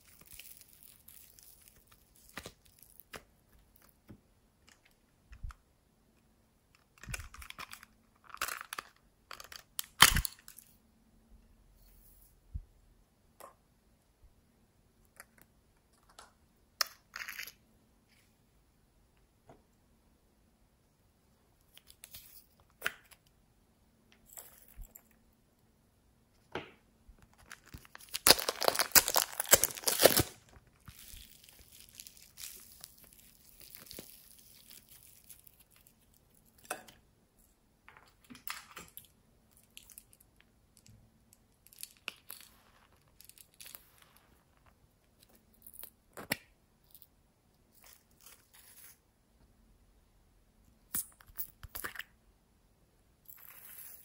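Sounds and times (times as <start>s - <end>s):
slime crackling and tearing: 0.0s - 3.2s, 27.5s - 36.1s.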